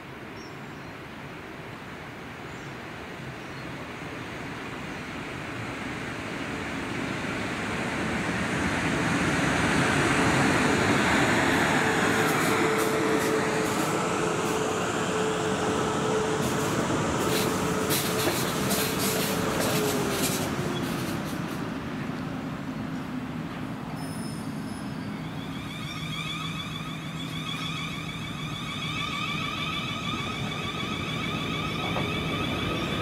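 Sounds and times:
train wheels rumbling on rail: 0:04.6 - 0:33.0
train motor whine: 0:09.9 - 0:21.7, 0:24.0 - 0:33.0.

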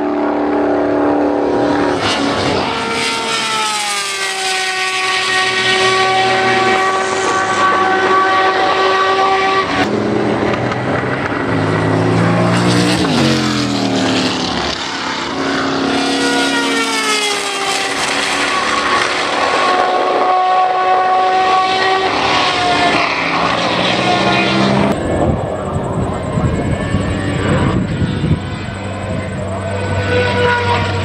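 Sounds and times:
racing car engine: 0:00.0 - 0:31.0.

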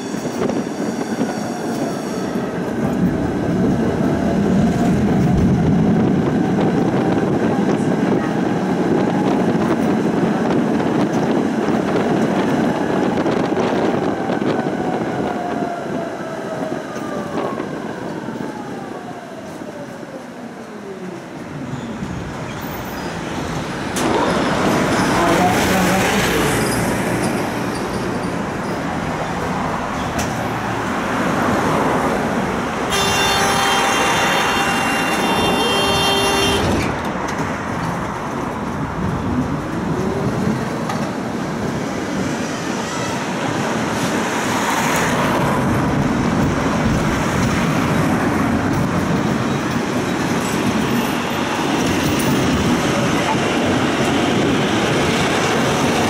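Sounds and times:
tram motor whine: 0:28.5 - 0:37.5.

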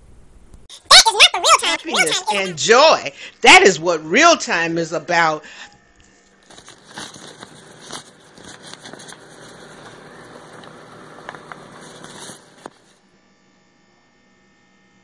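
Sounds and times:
faint hum: 0:00.0 - 0:15.0
phone rustling against paper and cloth: 0:06.1 - 0:13.0.

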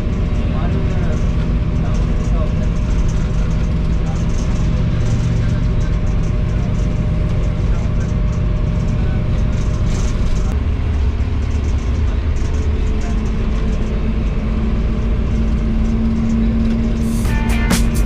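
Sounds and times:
locomotive engine and wheels rumbling: 0:00.0 - 0:18.0
steady hum: 0:17.0 - 0:18.0.

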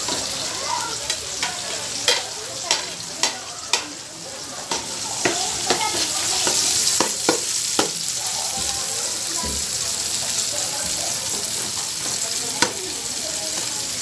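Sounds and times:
onion and garlic sizzling in oil: 0:00.0 - 0:14.0
spatula scraping and knocking pot: 0:04.7 - 0:08.8, 0:09.4 - 0:12.8.

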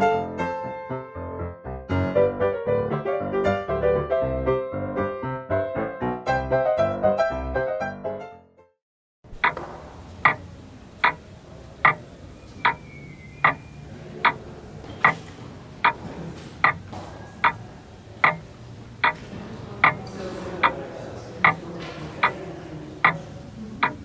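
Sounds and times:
clock ticking: 0:09.4 - 0:09.6, 0:10.2 - 0:12.8, 0:13.4 - 0:14.4, 0:15.8 - 0:16.0, 0:16.6 - 0:17.6, 0:18.2 - 0:19.2, 0:19.8 - 0:20.0, 0:20.6 - 0:20.8, 0:21.4 - 0:21.6, 0:22.2 - 0:22.4, 0:23.0 - 0:23.2, 0:23.8 - 0:24.0.

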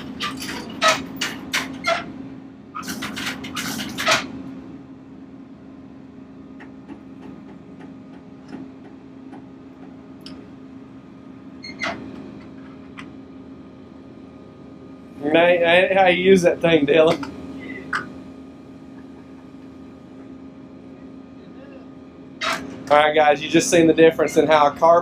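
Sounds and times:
metallic clattering and scraping: 0:00.0 - 0:02.1, 0:02.8 - 0:04.4
heavy equipment engine idling: 0:00.0 - 0:25.0.

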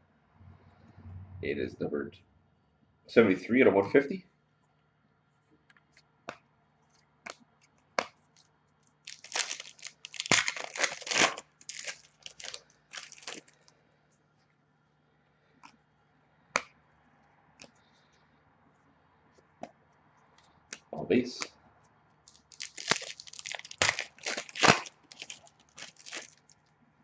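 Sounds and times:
cards shuffling and rustling: 0:09.1 - 0:13.6, 0:22.3 - 0:26.6.

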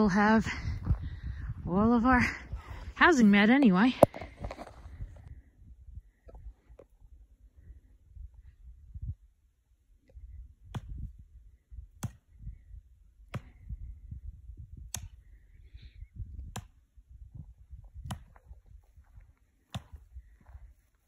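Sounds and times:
wind rumbling on microphone: 0:00.0 - 0:21.0
axe chopping into tree: 0:12.0 - 0:12.2, 0:13.3 - 0:13.6, 0:14.9 - 0:15.2, 0:16.5 - 0:16.8, 0:18.0 - 0:18.4, 0:19.7 - 0:20.0.

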